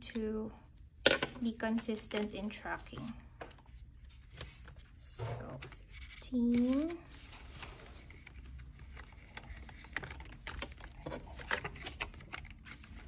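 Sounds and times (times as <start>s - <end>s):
plastic binder pages flipping: 5.5s - 13.0s
banknotes crinkling into plastic: 5.7s - 13.0s.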